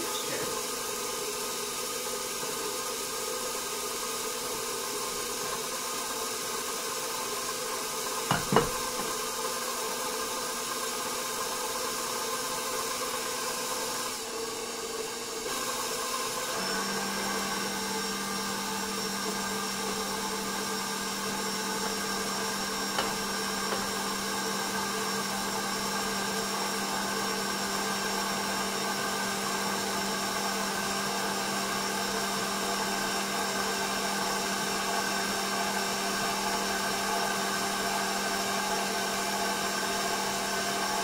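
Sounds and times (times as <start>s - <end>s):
stand mixer running: 0.0s - 41.0s.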